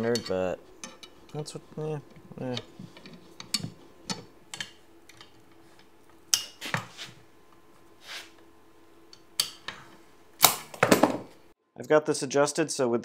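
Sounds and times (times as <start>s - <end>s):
metal scrape: 8.0s - 8.4s.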